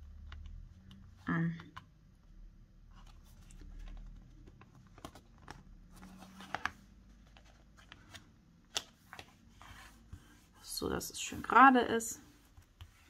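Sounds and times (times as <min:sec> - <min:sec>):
paper rustling: 0:03.0 - 0:10.4.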